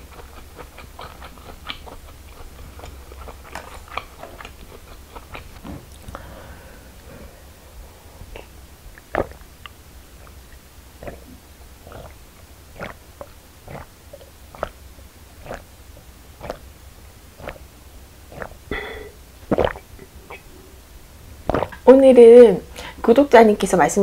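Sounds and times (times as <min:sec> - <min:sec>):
person gulping a drink: 0:08.3 - 0:12.2, 0:18.3 - 0:20.5, 0:21.5 - 0:21.8.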